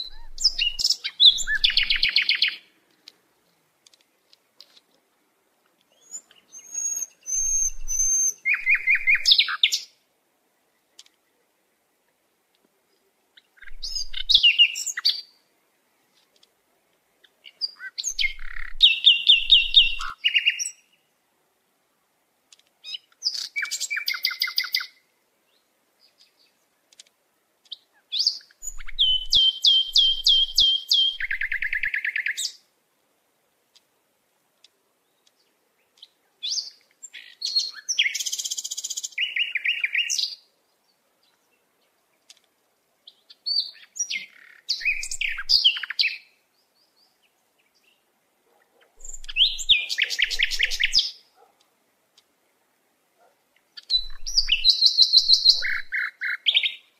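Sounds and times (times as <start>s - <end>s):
songbird singing: 0.0s - 21.3s, 22.5s - 32.8s, 33.7s - 56.9s.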